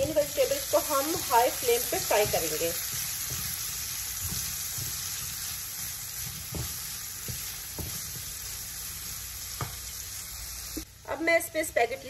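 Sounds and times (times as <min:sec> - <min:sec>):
food sizzling in a pan: 0:00.0 - 0:12.0
spatula knocking against pan: 0:02.0 - 0:05.4, 0:06.2 - 0:08.4.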